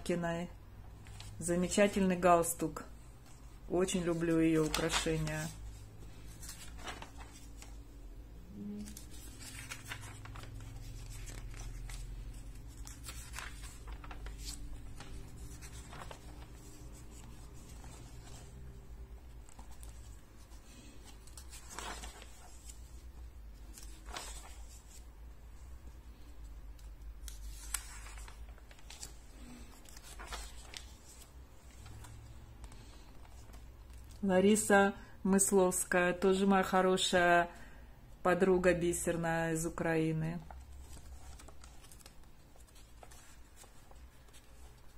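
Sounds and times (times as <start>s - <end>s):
low steady hum: 0.0s - 35.3s
magazine pages turning: 0.8s - 2.0s, 3.2s - 34.3s, 40.4s - 44.9s.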